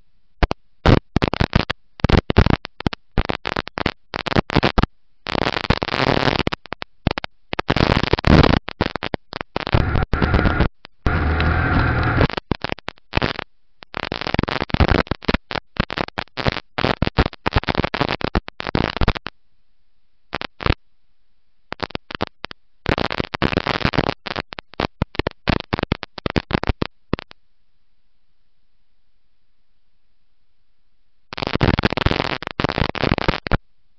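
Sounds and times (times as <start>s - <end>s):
harsh crackling microphone noise: 0.8s - 19.3s, 21.7s - 27.3s, 31.3s - 33.6s.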